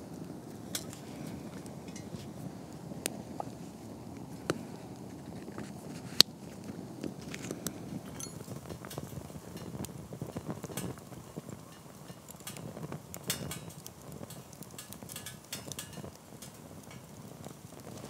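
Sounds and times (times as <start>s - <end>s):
flame rushing: 0.0s - 18.0s
wood fire crackling: 0.0s - 18.0s.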